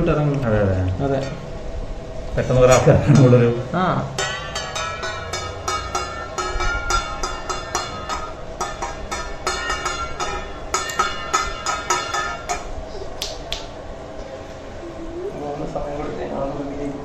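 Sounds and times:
plucked-string melody: 0:04.2 - 0:12.8.

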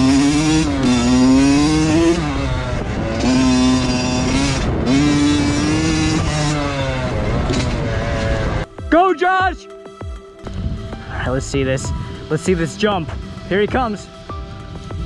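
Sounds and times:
dirt bike engine revving: 0:00.0 - 0:08.7
dirt bike engine running steadily: 0:00.0 - 0:08.7, 0:10.0 - 0:15.0.

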